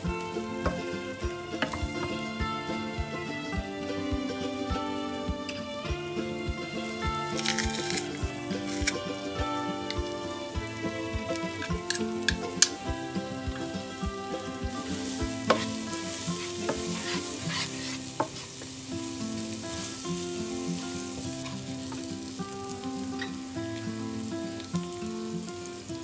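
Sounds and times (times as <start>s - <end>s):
onions sizzling in butter: 0.0s - 26.0s
soft background music: 0.0s - 26.0s
utensils clicking against pan: 7.2s - 9.1s, 11.3s - 12.8s, 15.0s - 18.5s.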